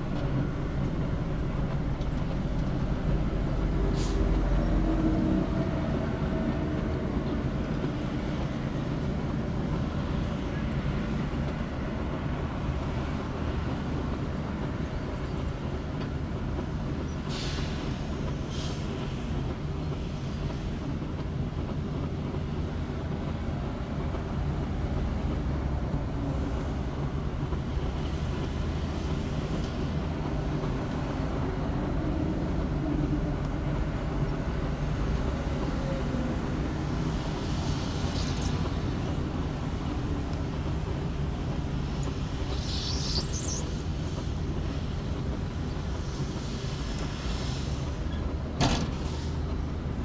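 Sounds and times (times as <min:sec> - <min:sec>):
diesel machinery engine drone: 0:00.0 - 0:50.0
brief hisses: 0:37.3 - 0:39.2, 0:41.6 - 0:45.1.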